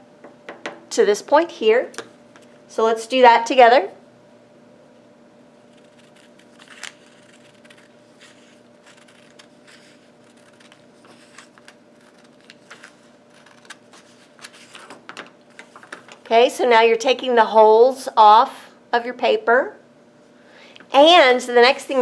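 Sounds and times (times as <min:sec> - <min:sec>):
scissors snipping paper: 0:05.7 - 0:15.0
paper crackle: 0:05.7 - 0:16.3.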